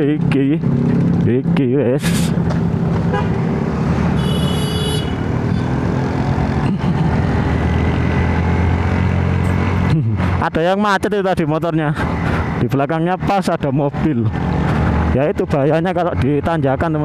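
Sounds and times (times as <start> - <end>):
motorcycle engine running: 0.0 - 10.4
vehicle horn toot: 3.1 - 3.4, 4.2 - 5.3.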